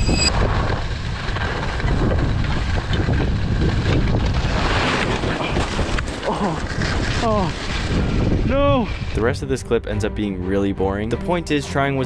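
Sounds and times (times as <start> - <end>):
wind buffeting microphone: 0.0 - 9.7
skis scraping over snow: 0.3 - 9.3.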